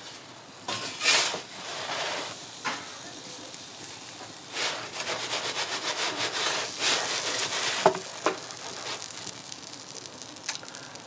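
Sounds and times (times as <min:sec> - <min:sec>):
metal peel scraping on stone: 0:00.7 - 0:02.3.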